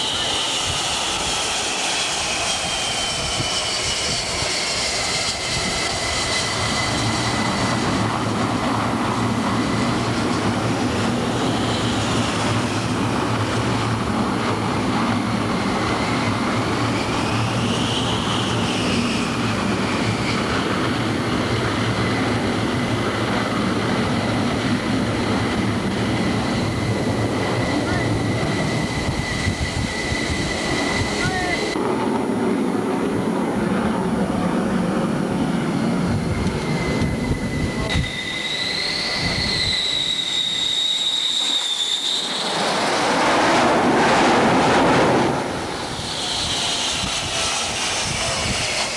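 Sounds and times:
jet engines with turbine whine: 0.0s - 48.9s.

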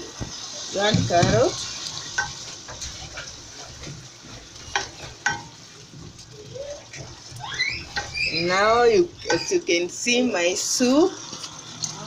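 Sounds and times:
soup sizzling: 0.0s - 12.0s.

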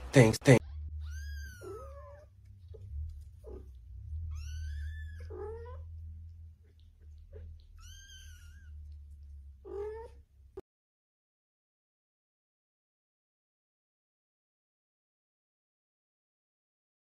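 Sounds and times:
low steady hum: 0.0s - 10.6s
kittens mewing: 0.6s - 6.0s, 9.6s - 10.2s.

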